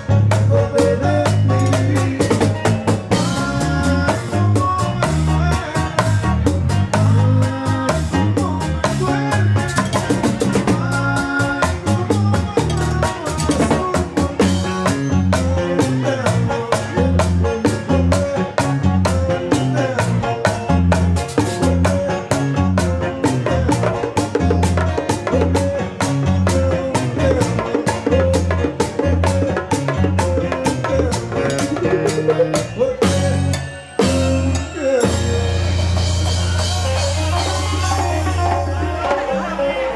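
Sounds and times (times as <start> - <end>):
snare and bass drum beat: 0.0 - 33.4
acoustic guitar: 0.0 - 39.9
live band playing: 0.0 - 39.9
man singing: 0.0 - 39.9
quick steady drum beat: 18.9 - 33.5.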